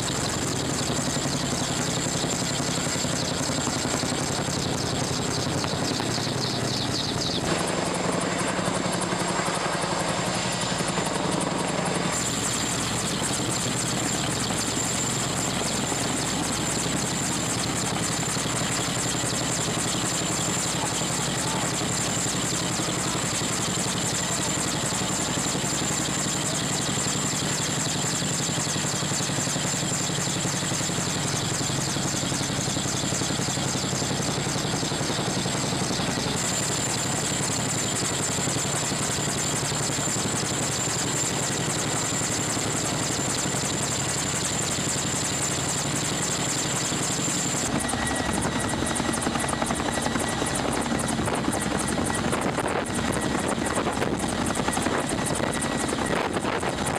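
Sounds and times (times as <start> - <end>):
helicopter rotor chop: 0.0 - 56.9
high turbine whine: 0.0 - 56.9.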